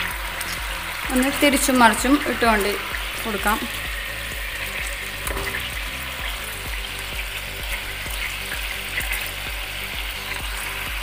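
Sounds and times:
chicken sizzling in hot oil: 0.0 - 11.0.

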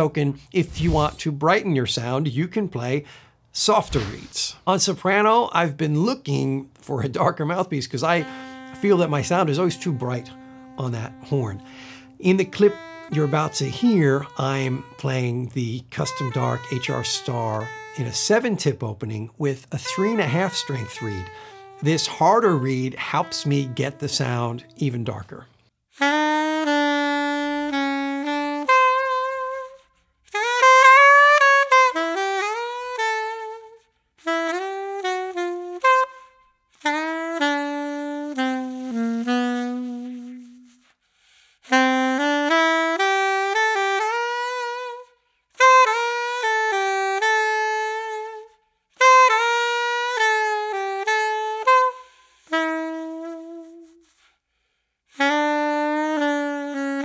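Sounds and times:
soprano saxophone playing: 0.0 - 1.2, 6.2 - 57.0
player breathing: 3.0 - 4.3, 11.6 - 12.2, 40.8 - 41.7.

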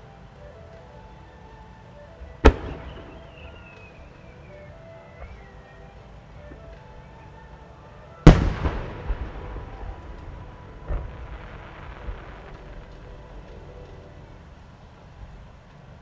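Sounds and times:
echoing booms: 2.4 - 3.8, 8.2 - 13.9
firework shell booming: 8.2 - 12.7.

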